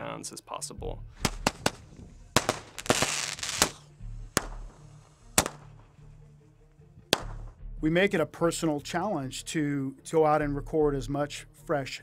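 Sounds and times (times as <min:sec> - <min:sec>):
low steady music: 0:00.0 - 0:12.0
sharp cracks and bangs: 0:01.2 - 0:01.8, 0:02.4 - 0:03.8, 0:04.4 - 0:05.9, 0:07.1 - 0:07.6.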